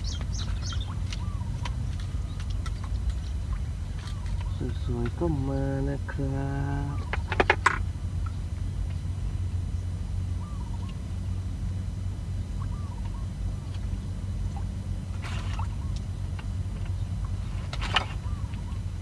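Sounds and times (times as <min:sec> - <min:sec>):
steady low rumble: 0:00.0 - 0:19.0
small bird chirping faintly: 0:12.5 - 0:14.7.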